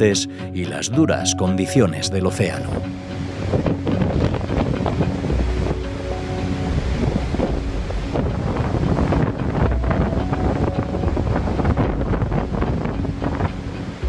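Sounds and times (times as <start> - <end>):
faint background music: 0.0 - 14.0
waves breaking: 2.5 - 14.0
wind buffeting microphone: 2.7 - 14.0
low rumble: 3.2 - 14.0.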